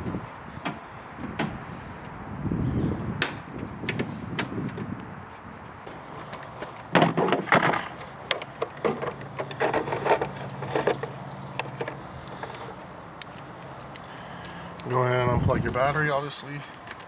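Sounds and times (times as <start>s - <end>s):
tools clattering in a case: 7.0s - 11.1s.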